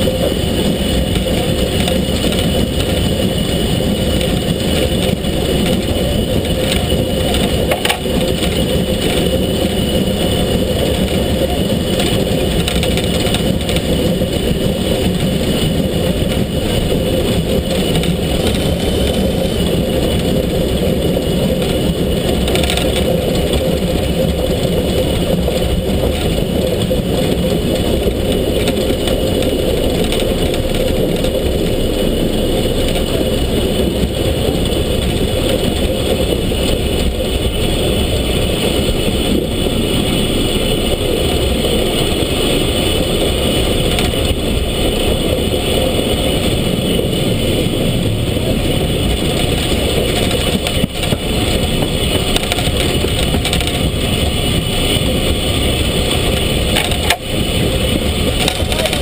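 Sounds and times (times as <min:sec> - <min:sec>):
steam locomotive rumbling: 0:00.0 - 0:59.0
wind on microphone: 0:00.0 - 0:59.0.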